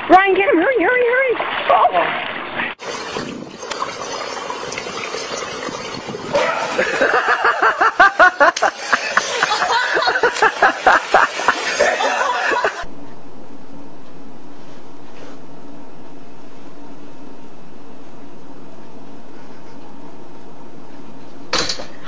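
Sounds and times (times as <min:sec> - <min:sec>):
pool water sloshing: 0:00.9 - 0:12.9
steady hum: 0:02.7 - 0:22.0
person laughing hard: 0:06.4 - 0:12.9.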